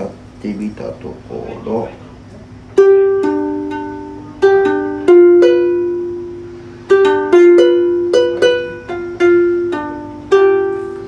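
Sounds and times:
ukulele notes plucked: 2.7s - 11.0s.

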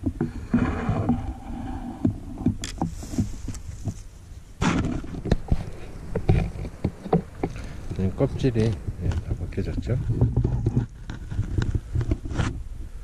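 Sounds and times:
brush rustling: 0.0s - 13.0s
footsteps in dry grass and snow: 2.8s - 9.4s.

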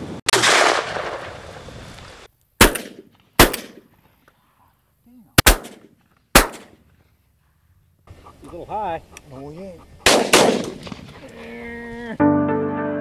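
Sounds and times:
shotgun shots: 0.3s - 1.4s, 2.6s - 3.9s, 5.4s - 6.8s, 10.0s - 11.1s.

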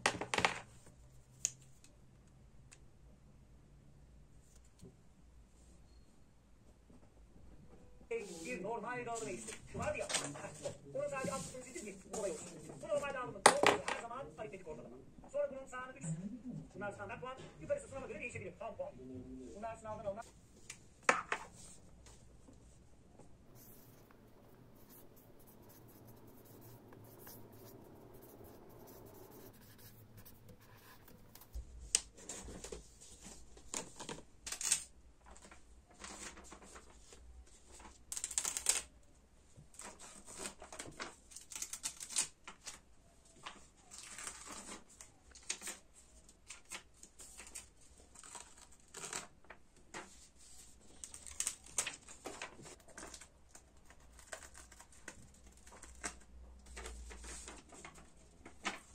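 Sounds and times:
paper ripping and crinkling: 32.2s - 37.1s, 37.7s - 38.9s, 39.8s - 42.8s, 43.4s - 45.9s, 46.5s - 49.6s, 50.6s - 58.9s.

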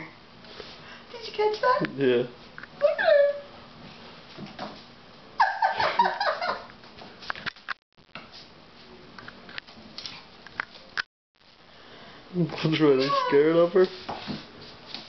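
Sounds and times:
woman laughing: 5.4s - 6.7s.

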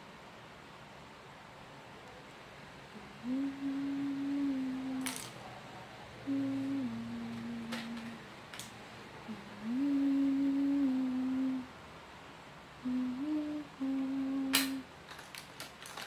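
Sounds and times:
woman humming a tune: 2.9s - 5.4s, 6.2s - 8.3s, 9.2s - 11.7s, 12.8s - 14.9s.

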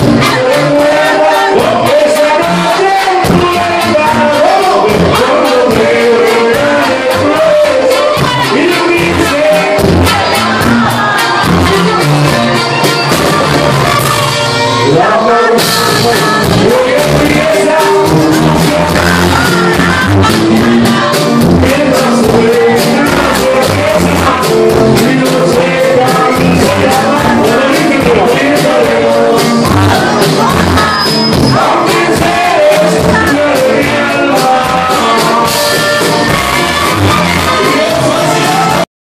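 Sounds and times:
accordion: 0.0s - 38.9s
drums: 0.0s - 38.9s
live band playing: 0.0s - 38.9s
saxophone: 3.4s - 25.0s, 34.8s - 38.9s.

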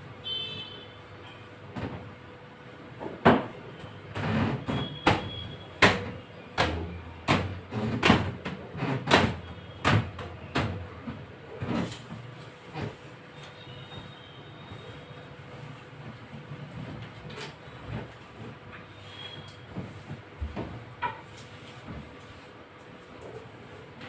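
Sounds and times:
knocks and bangs on a window frame: 3.0s - 12.0s.

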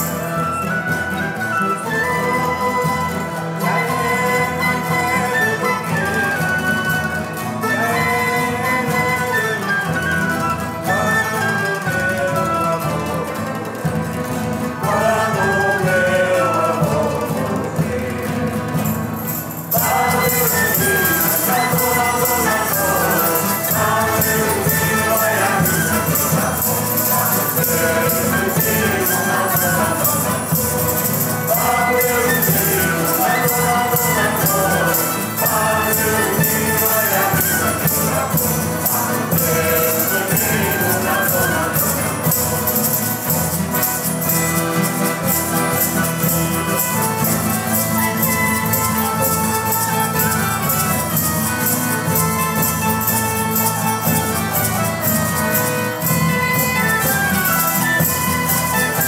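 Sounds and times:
guitars mandolin and accordion: 0.0s - 59.0s
rhythmic jingling percussion: 0.0s - 59.0s
voices singing: 0.0s - 59.0s.

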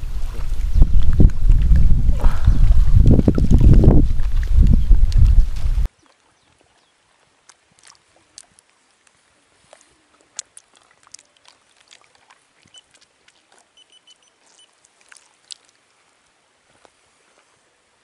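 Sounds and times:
water lapping and splashing: 0.0s - 18.0s
faint high chirps: 13.8s - 14.8s.

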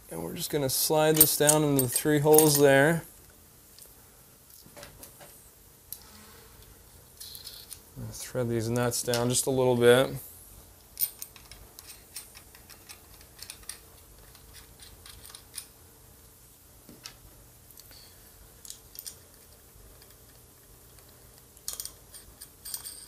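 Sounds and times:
metal parts handling: 1.0s - 3.0s, 7.2s - 7.8s, 11.0s - 15.7s, 21.5s - 23.0s
small metallic clicks: 10.9s - 15.7s.

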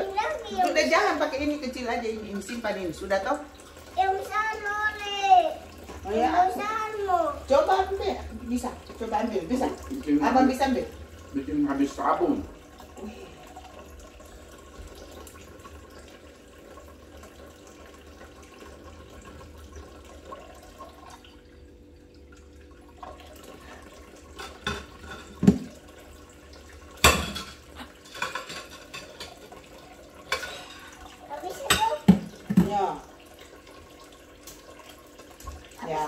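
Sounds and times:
tap water running: 0.0s - 36.0s
dishes clinking against sink: 24.3s - 25.8s, 27.0s - 33.0s.

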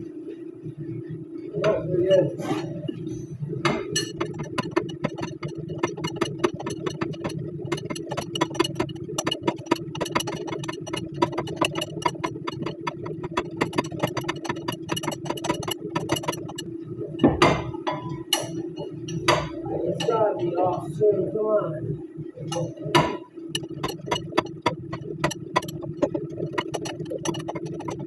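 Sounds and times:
low hum: 0.0s - 28.0s
hand ratchet clicking: 4.0s - 16.6s, 23.5s - 28.0s.

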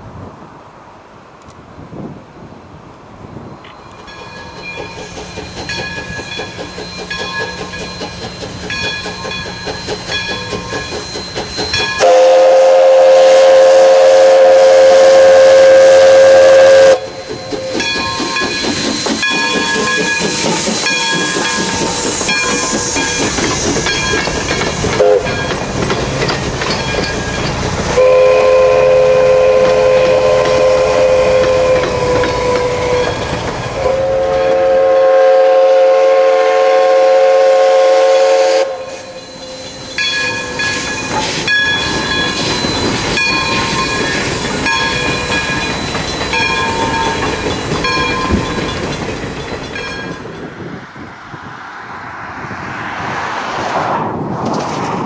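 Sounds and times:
steam locomotive passing: 1.8s - 55.0s
wheels clacking on rail joints: 3.6s - 13.6s, 15.1s - 34.9s, 39.0s - 50.8s
steam whistle blasts: 11.7s - 17.8s, 25.0s - 25.4s, 28.0s - 33.2s, 33.8s - 39.8s.

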